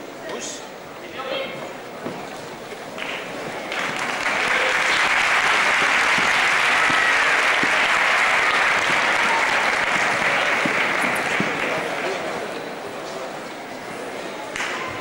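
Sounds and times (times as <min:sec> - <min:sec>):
audience applauding: 0:03.0 - 0:12.6.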